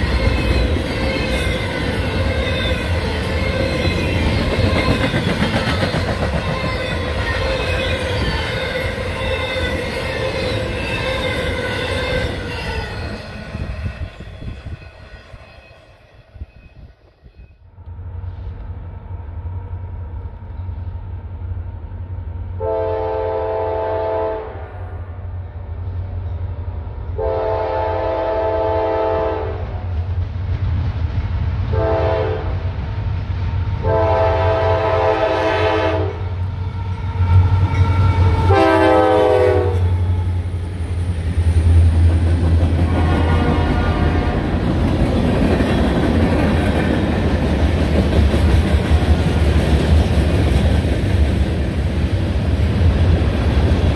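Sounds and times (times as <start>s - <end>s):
locomotive air horn blasts: 22.6s - 25.0s, 27.2s - 29.7s, 31.7s - 32.6s, 33.8s - 36.4s, 38.2s - 40.2s, 42.8s - 44.5s.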